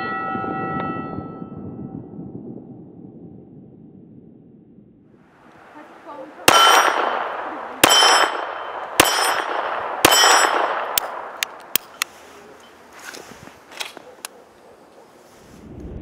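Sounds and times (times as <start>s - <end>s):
pistol shots: 6.4s - 12.0s
steel target plate ringing: 6.5s - 11.2s.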